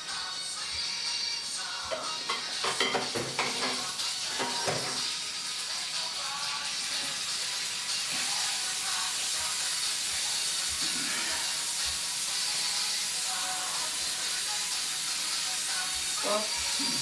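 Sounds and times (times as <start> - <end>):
tap water running into sink: 1.9 - 8.8.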